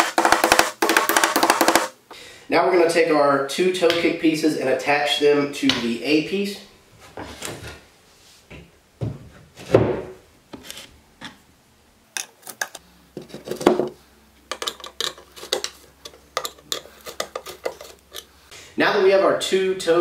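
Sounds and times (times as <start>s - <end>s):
screwdriver clicking and scraping: 12.2s - 13.5s, 14.5s - 18.3s.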